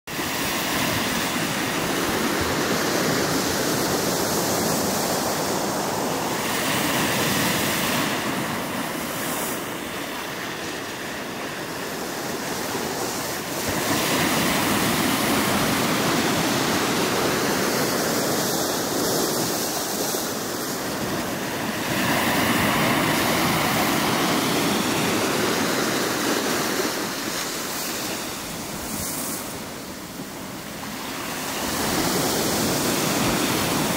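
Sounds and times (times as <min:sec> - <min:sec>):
waves washing through slush ice: 0:00.2 - 0:33.9.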